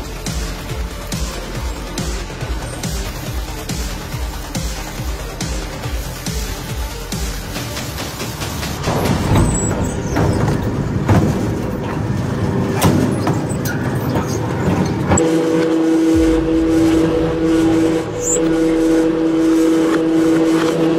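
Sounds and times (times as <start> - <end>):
two-pitch machine hum: 15.2 - 20.9.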